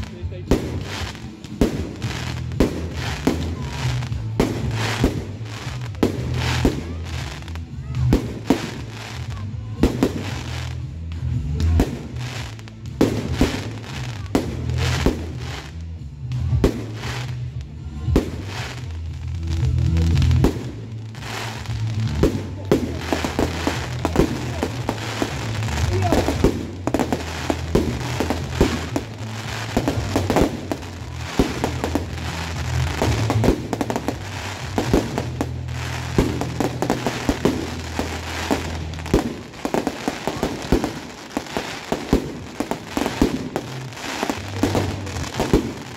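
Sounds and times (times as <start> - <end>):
fireworks bursting and crackling: 0.0 - 45.9
music playing: 0.0 - 45.9.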